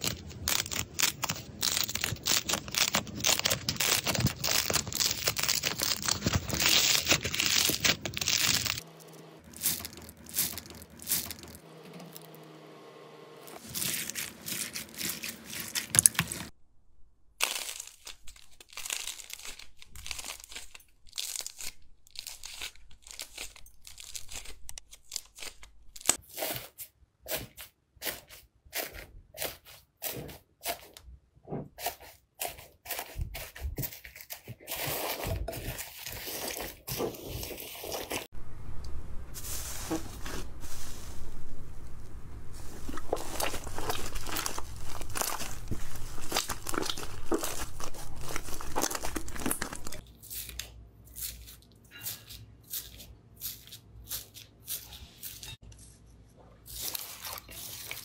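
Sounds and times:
slime crackling and popping: 0.0 - 8.8, 17.4 - 26.2, 42.9 - 50.0.

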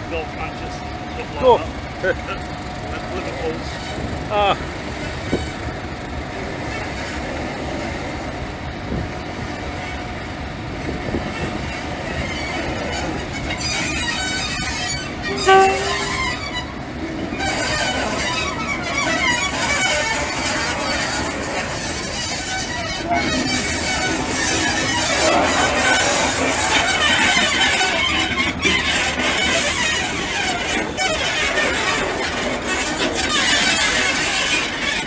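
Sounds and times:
diesel locomotive engine running: 0.0 - 35.0
running gear squealing: 12.1 - 35.0
train horn toot: 12.9 - 32.1.

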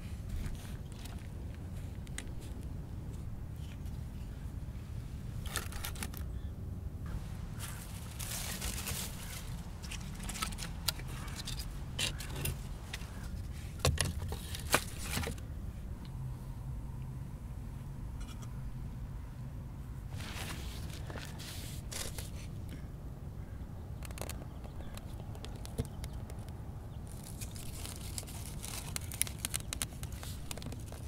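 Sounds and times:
low steady rumble: 0.0 - 31.0
firewood sticks being handled: 7.1 - 15.4, 20.1 - 22.5, 27.1 - 31.0.

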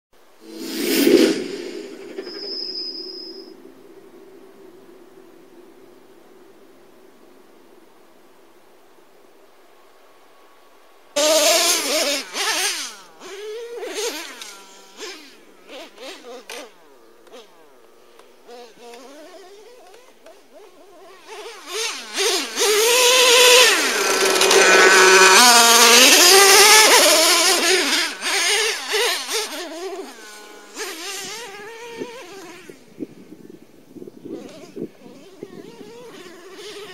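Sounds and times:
rc truck engine revving: 11.2 - 32.8, 34.4 - 36.9.

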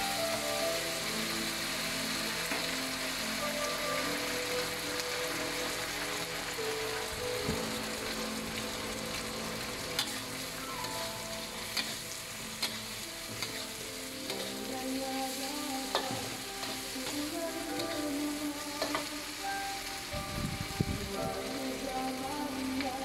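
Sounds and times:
food sizzling in a wok: 0.0 - 23.0
metal spatula scraping a wok: 9.9 - 17.2.

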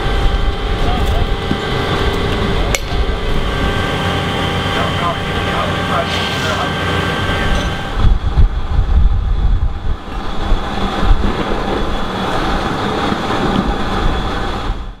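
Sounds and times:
fire engine motor and pump: 0.0 - 15.0
heavy low rumbling: 0.0 - 15.0
hose spraying water: 4.8 - 7.5.

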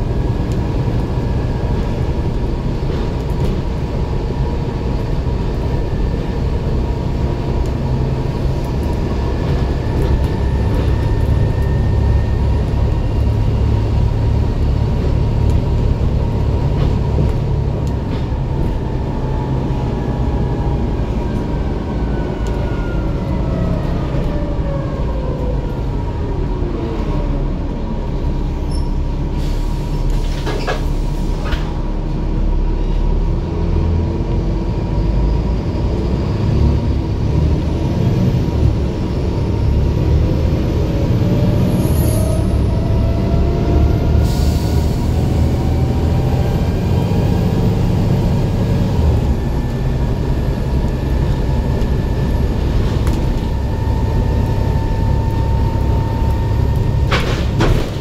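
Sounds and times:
transmission whine: 0.0 - 24.4, 40.6 - 58.0
bus engine rumble: 0.0 - 58.0.

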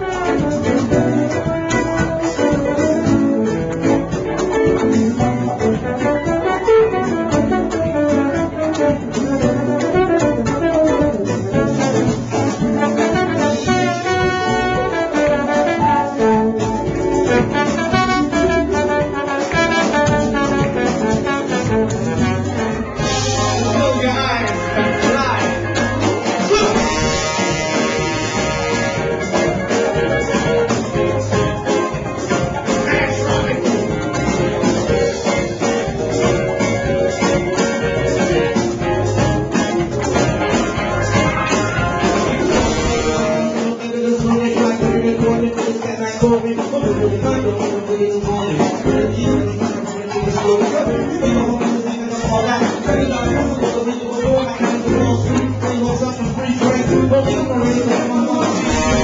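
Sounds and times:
saxophone: 0.0 - 44.2, 58.3 - 59.0
congas: 0.0 - 59.0
electric guitar: 0.0 - 59.0.

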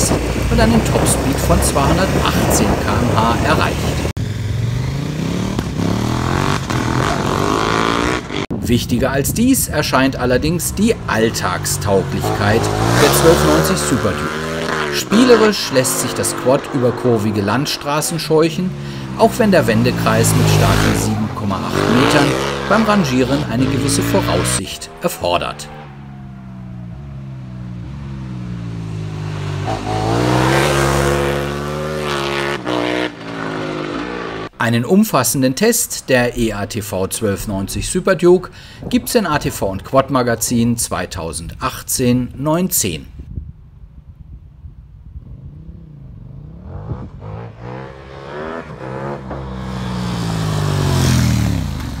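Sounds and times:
quad engine passing: 0.0 - 8.6, 9.6 - 34.5, 45.2 - 52.0.

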